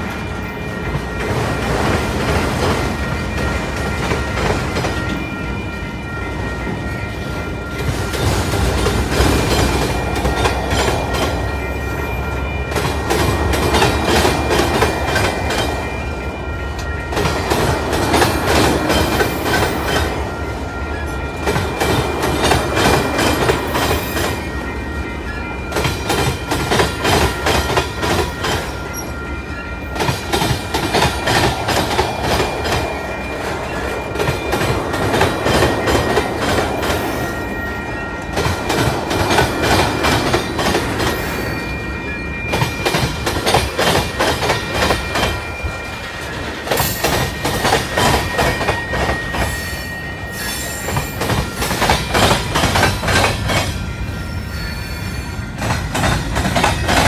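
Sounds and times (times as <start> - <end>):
train wheels clacking over rail joints: 12.7 - 15.8, 16.8 - 20.3, 21.4 - 24.6, 25.7 - 29.0, 30.0 - 37.1, 38.2 - 41.4, 42.5 - 49.6, 50.8 - 53.8, 55.6 - 57.0.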